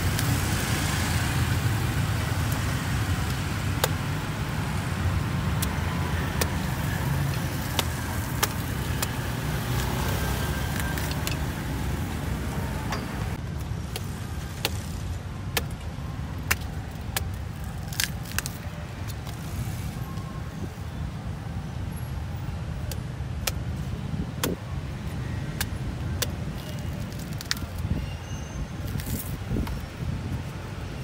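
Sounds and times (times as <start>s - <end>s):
low rumble of street traffic: 0.0s - 31.0s
knife chopping fruit husk: 3.2s - 11.4s, 16.4s - 19.2s, 22.8s - 24.6s, 25.5s - 27.7s.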